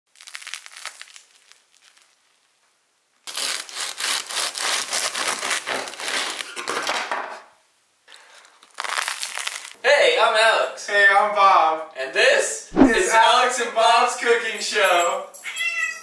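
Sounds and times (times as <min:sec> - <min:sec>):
bread crust crackling: 0:00.1 - 0:06.6, 0:08.2 - 0:09.8.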